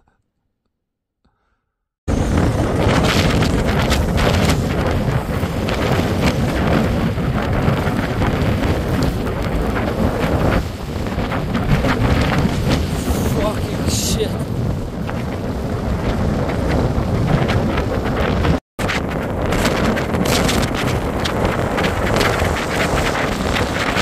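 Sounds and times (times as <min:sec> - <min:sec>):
strong wind on microphone: 0:02.1 - 0:24.0.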